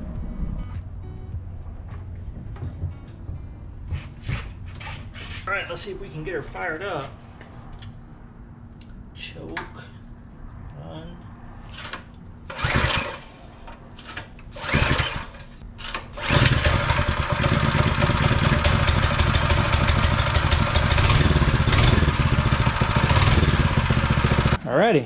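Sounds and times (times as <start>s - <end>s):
recoil starter pulls: 11.7s - 24.6s
small engine running: 12.5s - 24.6s.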